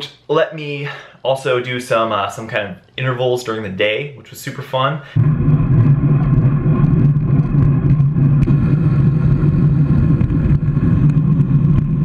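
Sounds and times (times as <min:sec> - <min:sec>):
wind rumbling on microphone: 0:05.2 - 0:12.0.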